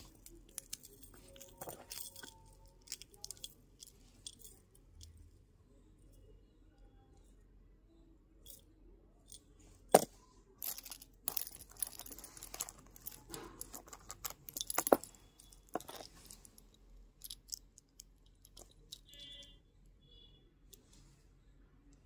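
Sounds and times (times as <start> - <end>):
metal earrings clinking: 0.0 - 5.4, 8.4 - 19.6.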